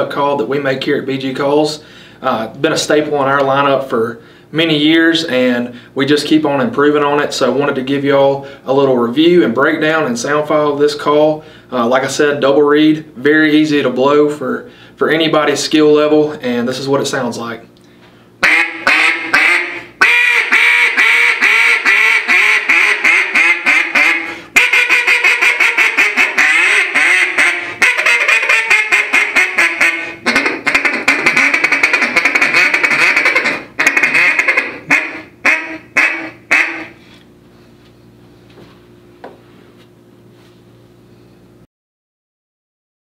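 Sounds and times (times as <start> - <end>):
duck call quacks and chatter: 18.4 - 37.0.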